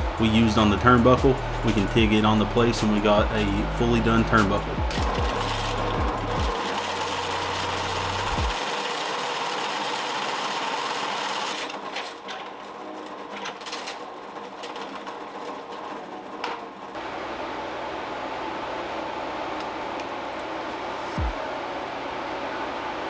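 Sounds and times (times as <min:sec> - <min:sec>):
drill press boring metal: 0:00.0 - 0:16.9.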